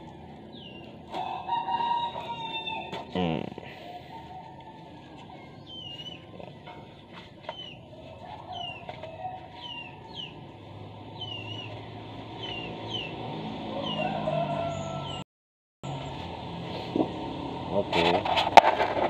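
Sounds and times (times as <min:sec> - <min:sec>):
bird chirping: 0:00.0 - 0:01.0, 0:05.3 - 0:07.8, 0:09.5 - 0:10.4, 0:11.1 - 0:15.2.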